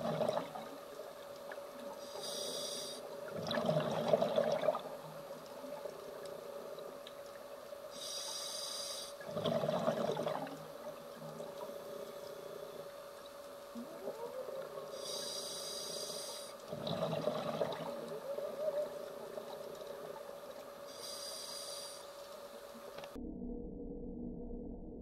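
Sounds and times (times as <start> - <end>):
exhaled bubbles: 0.0 - 0.8, 3.2 - 6.4, 9.2 - 11.7, 16.6 - 20.8
steady hum: 0.0 - 24.5
regulator hissing inhale: 2.0 - 3.2, 7.9 - 9.3, 14.9 - 16.7, 20.9 - 22.3.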